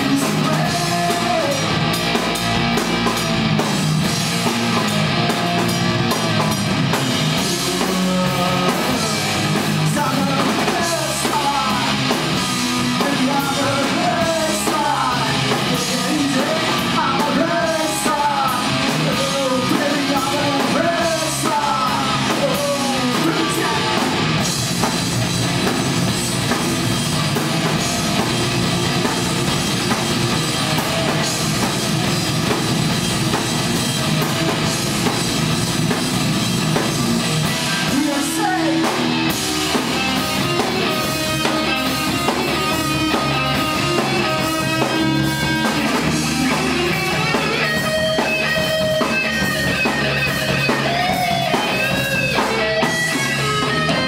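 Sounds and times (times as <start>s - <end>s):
person singing: 0.0s - 1.7s, 7.4s - 12.1s, 12.8s - 24.2s, 37.8s - 39.2s
bass guitar: 0.0s - 54.0s
distorted electric guitar: 0.0s - 54.0s
drum kit: 0.0s - 54.0s.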